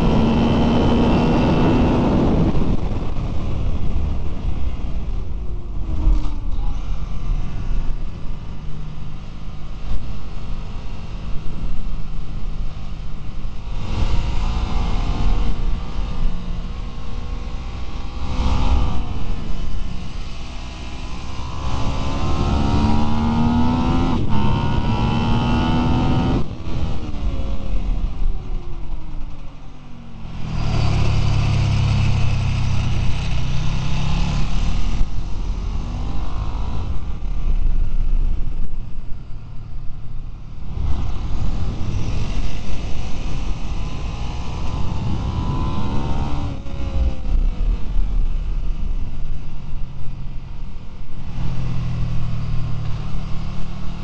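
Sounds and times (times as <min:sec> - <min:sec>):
motorcycle engine revving: 0:00.0 - 0:04.9, 0:12.9 - 0:50.5
wind noise: 0:00.0 - 0:54.0.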